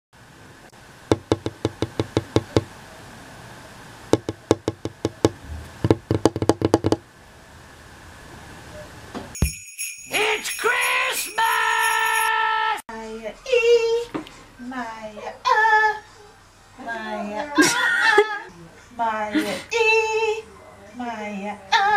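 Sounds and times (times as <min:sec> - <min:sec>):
music jingle with bells: 0:09.4 - 0:12.4.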